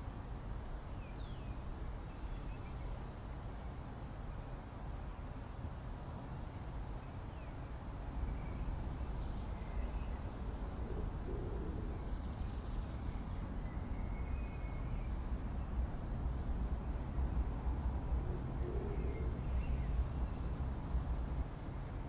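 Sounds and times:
steady low rumble: 0:08.3 - 0:22.0.

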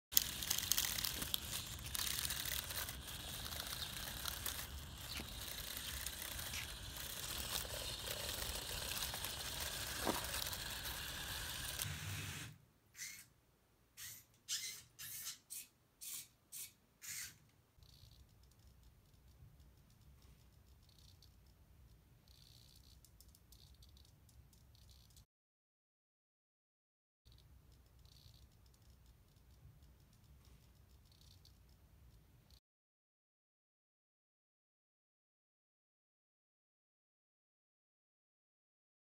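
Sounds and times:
robot tracks crunching on gravel: 0:00.2 - 0:11.9.

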